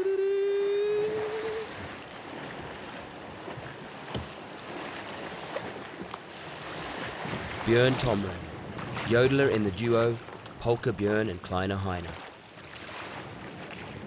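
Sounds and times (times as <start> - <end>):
person singing a held note: 0.0 - 1.7
waves on open sea: 0.0 - 14.0
wind: 0.0 - 14.0.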